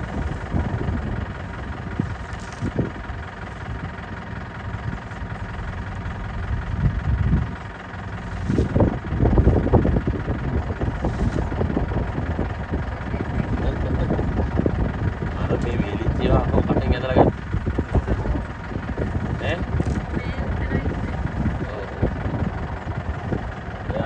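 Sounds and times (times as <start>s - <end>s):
vehicle engine idling: 0.0s - 24.0s.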